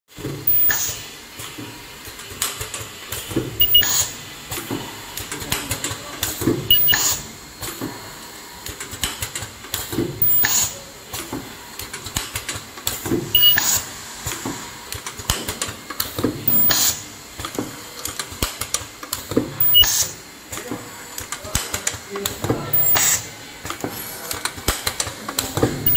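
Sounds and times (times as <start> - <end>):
machine ticking: 0.5 - 1.0, 3.6 - 4.1, 6.7 - 7.2, 10.2 - 10.6, 13.3 - 13.8, 16.5 - 16.8, 19.6 - 20.2, 22.7 - 23.2
welding machine clacking: 0.5 - 1.1, 2.1 - 7.2, 8.7 - 13.8, 14.9 - 25.9.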